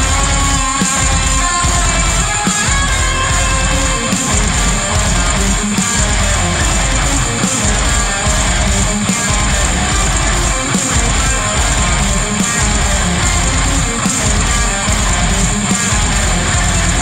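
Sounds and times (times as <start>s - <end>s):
metalcore music with distorted guitars: 0.0s - 17.0s.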